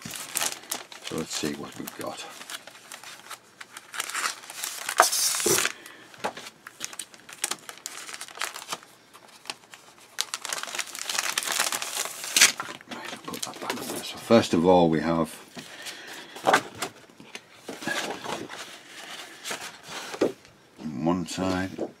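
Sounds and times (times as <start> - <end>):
plastic bag crinkling: 0.0 - 14.4.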